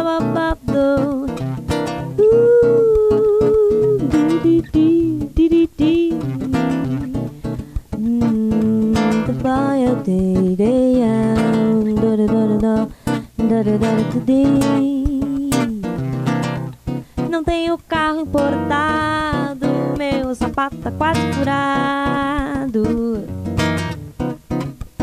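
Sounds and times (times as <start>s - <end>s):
woman singing wordless melody: 0.0s - 16.6s, 17.2s - 23.4s
acoustic guitar: 0.0s - 25.0s.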